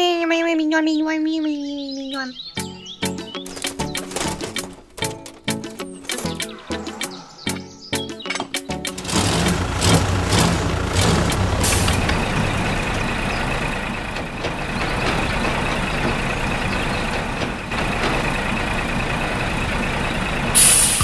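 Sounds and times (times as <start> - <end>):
heavy vehicle engine rumble: 8.9 - 21.0.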